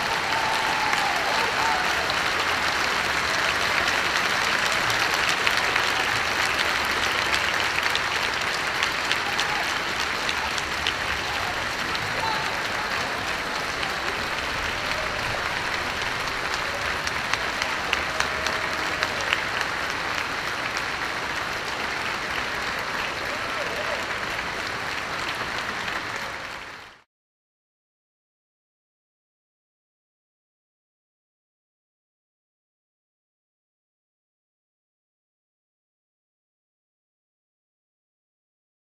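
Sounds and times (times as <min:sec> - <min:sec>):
large audience applauding: 0:00.0 - 0:27.1.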